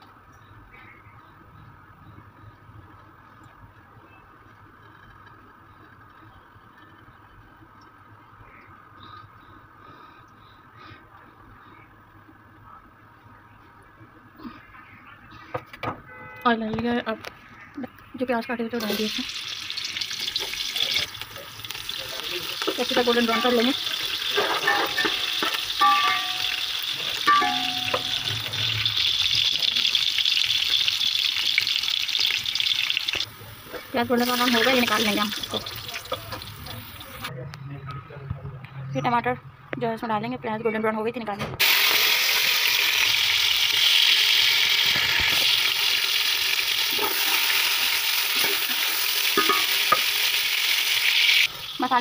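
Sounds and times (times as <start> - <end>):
onions sizzling in hot oil: 18.8 - 37.3, 41.6 - 52.0.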